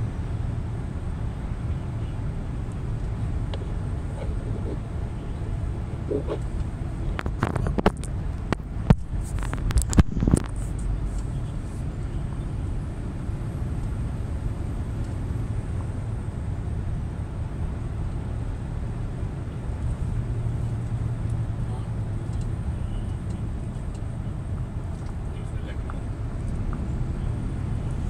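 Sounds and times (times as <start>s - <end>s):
truck engine and tyres drone: 0.0s - 28.0s
sharp clicks and knocks: 6.1s - 10.9s.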